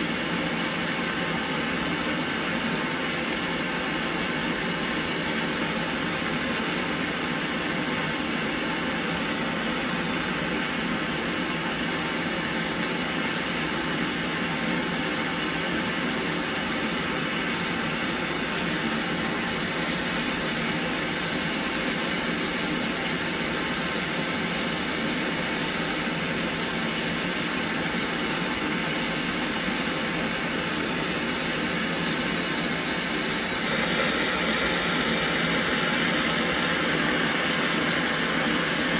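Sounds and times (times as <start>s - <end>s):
gas torch hissing: 27.5s - 38.9s.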